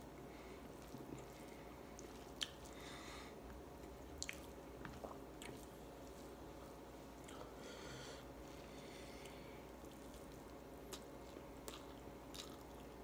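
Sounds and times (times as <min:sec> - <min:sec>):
chewing: 0:00.7 - 0:02.9, 0:04.1 - 0:06.2, 0:09.2 - 0:13.0.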